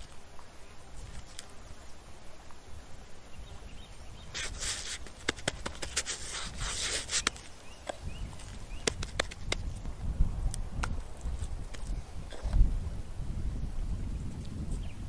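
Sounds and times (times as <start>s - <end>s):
sharp crackling clicks: 4.4s - 9.7s.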